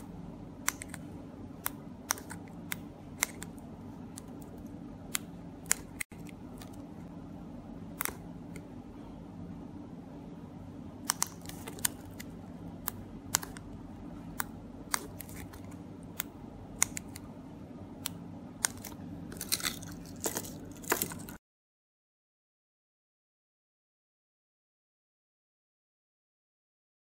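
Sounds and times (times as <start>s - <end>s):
steady low hum: 0.0s - 21.4s.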